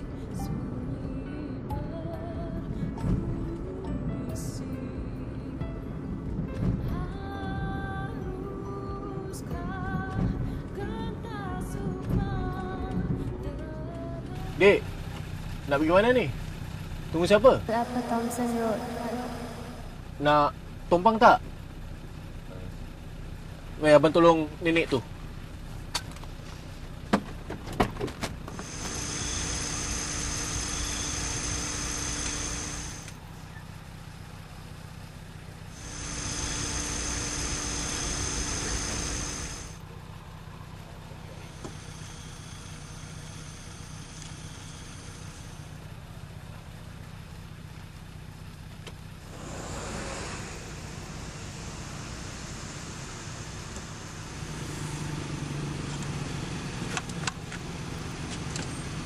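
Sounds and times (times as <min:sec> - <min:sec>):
car engine idling: 0:00.0 - 0:59.0
hiss with high whine: 0:28.6 - 0:33.2, 0:35.7 - 0:39.8, 0:41.4 - 0:45.8, 0:49.2 - 0:54.7.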